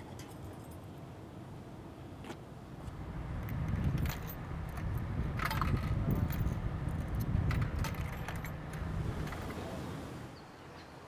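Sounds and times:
low steady rumble: 0:02.8 - 0:10.3.

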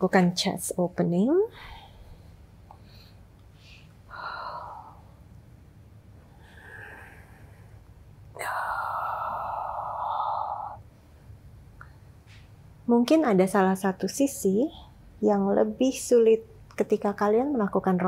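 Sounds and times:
woman breathing: 0:01.5 - 0:10.9.

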